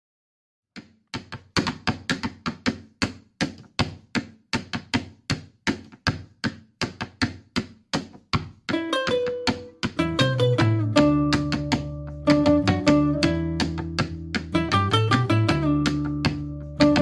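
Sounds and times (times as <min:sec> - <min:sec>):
hollow percussion strikes: 0:08.7 - 0:17.0.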